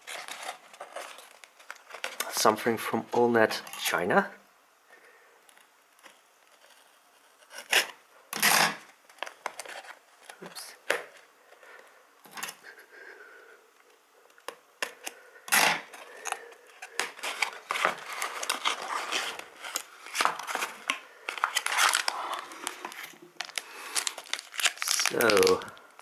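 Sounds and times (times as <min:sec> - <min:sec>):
tape tearing: 0:07.4 - 0:11.2, 0:14.8 - 0:25.8
cardboard scraping and rustling: 0:16.8 - 0:25.6.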